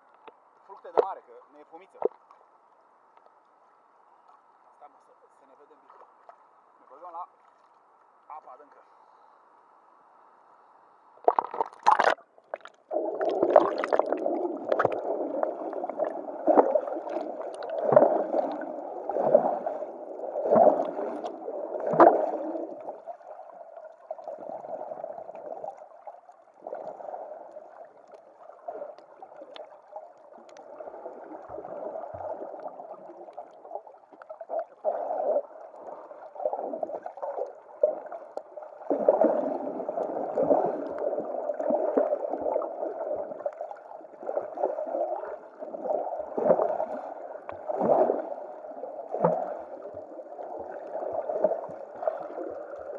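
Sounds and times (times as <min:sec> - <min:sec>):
splash into water: 0:11.2 - 0:15.0
muffled underwater sloshing: 0:11.2 - 0:52.9.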